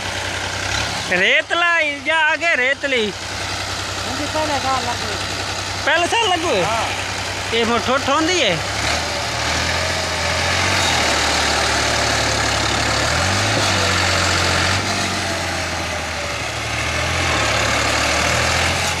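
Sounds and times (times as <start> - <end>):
tractor diesel engine working hard: 0.0 - 19.0
wheels churning water and mud: 0.0 - 19.0.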